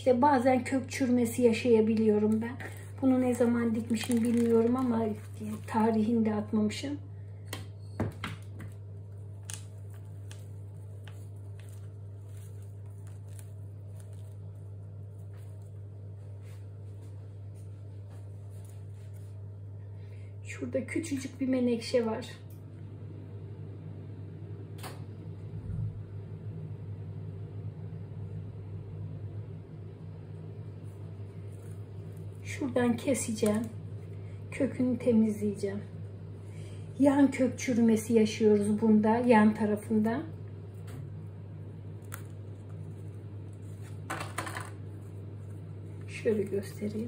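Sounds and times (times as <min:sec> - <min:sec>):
steady low hum: 0:00.0 - 0:47.0
potting mix rustling by hand: 0:01.9 - 0:06.5, 0:08.6 - 0:19.6, 0:30.8 - 0:34.0, 0:39.3 - 0:44.1, 0:44.7 - 0:47.0.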